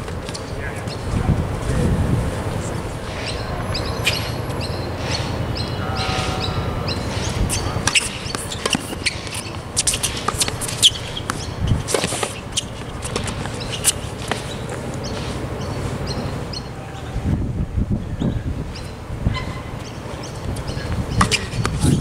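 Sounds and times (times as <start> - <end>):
birds chirping: 0.0 - 1.8, 2.4 - 22.0
racket hitting tennis ball: 6.0 - 14.8
shoes scuffing on court: 7.0 - 16.3.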